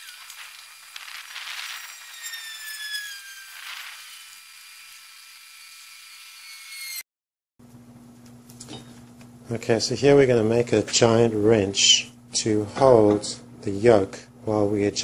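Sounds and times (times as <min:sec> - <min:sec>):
thin falling tone: 0:00.0 - 0:04.4.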